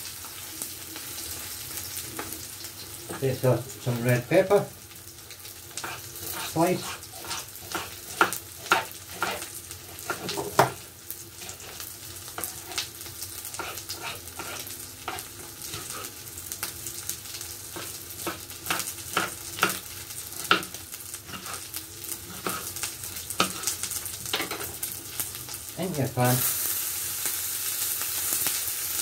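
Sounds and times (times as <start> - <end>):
chicken frying in a pan: 0.0 - 29.0.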